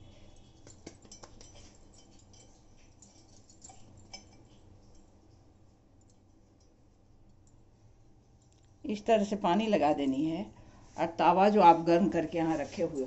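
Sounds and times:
faint clicks of handling dough: 0:00.1 - 0:07.6.

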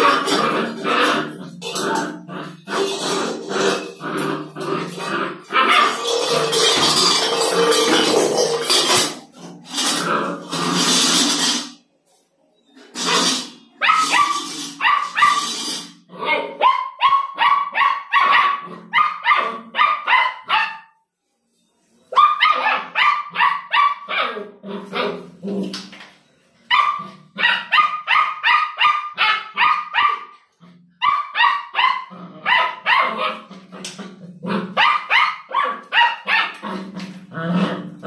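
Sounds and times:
puppy barking rapidly: 0:05.5 - 0:06.1, 0:13.8 - 0:15.6, 0:16.4 - 0:20.9, 0:22.2 - 0:24.4, 0:26.7 - 0:30.4, 0:31.0 - 0:33.5, 0:34.8 - 0:36.6.

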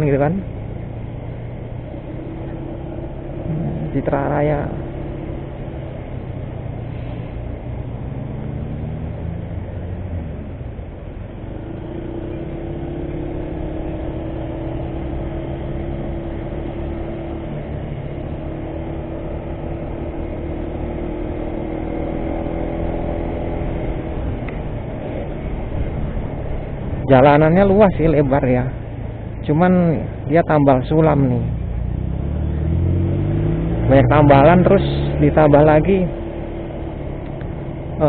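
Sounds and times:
motor scooter engine running: 0:00.0 - 0:29.5
wind and road noise: 0:00.0 - 0:38.0.

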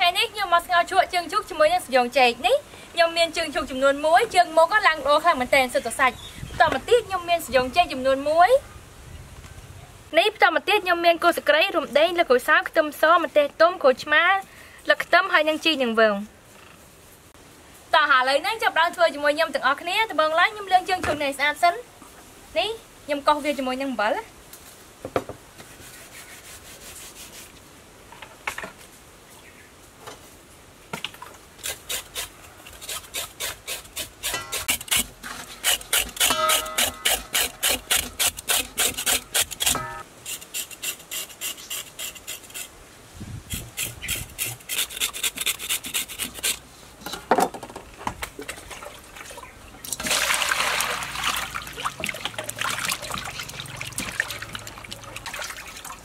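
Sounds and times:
water sloshing in a bowl: 0:48.3 - 0:56.0.

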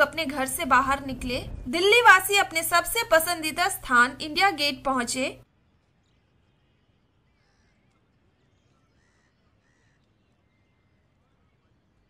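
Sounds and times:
faint outdoor ambience: 0:00.0 - 0:12.0
faint short bird calls: 0:06.6 - 0:11.7.

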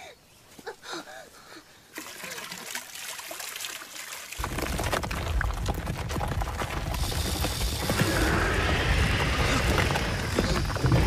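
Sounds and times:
small stones crackling: 0:04.4 - 0:11.0.

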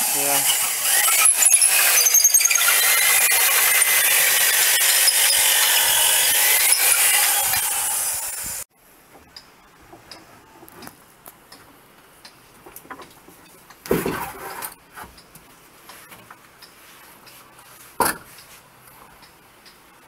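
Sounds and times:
electric drill boring into wood: 0:00.0 - 0:08.7.

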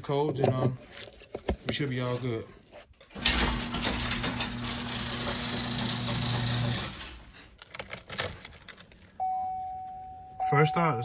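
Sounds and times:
machine humming and rattling: 0:03.2 - 0:07.3
dash chime tone: 0:09.2 - 0:11.0.

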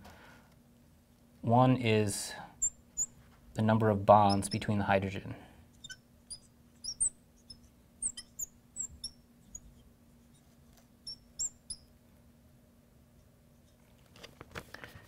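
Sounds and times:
marker squeaking on glass: 0:02.6 - 0:03.2, 0:04.1 - 0:04.7, 0:05.7 - 0:11.9.

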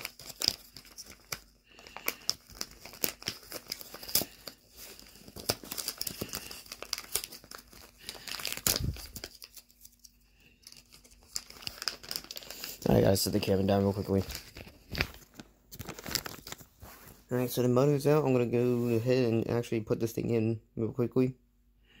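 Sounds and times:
plastic bag crinkling: 0:00.0 - 0:17.3.

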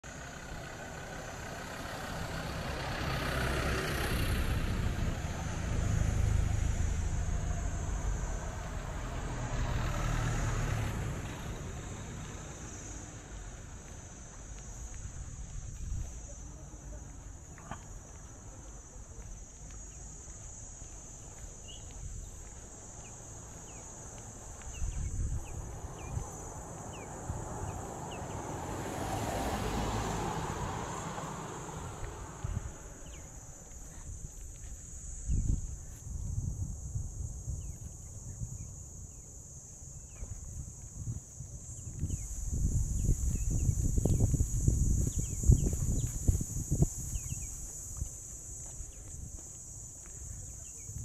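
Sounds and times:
vehicle passing: 0:00.1 - 0:18.8, 0:21.6 - 0:35.2.

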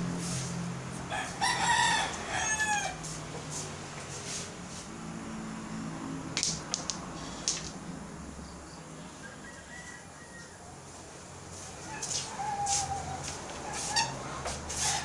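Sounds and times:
rooster crowing: 0:01.0 - 0:03.2, 0:09.1 - 0:11.0, 0:11.8 - 0:15.0
pool balls knocking together: 0:06.4 - 0:07.8.

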